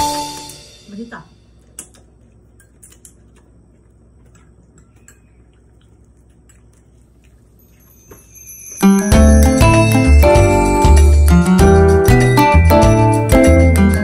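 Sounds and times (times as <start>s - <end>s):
chopsticks clicking: 1.7s - 3.5s
loud background music: 9.0s - 14.0s.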